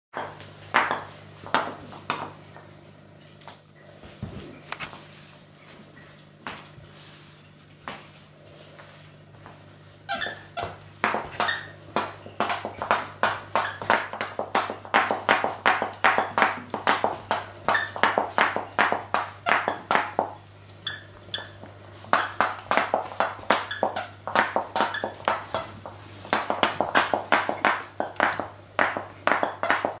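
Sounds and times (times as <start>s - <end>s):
squeaky chew toy squeaking: 10.1s - 10.6s, 11.4s - 11.7s, 20.8s - 21.6s.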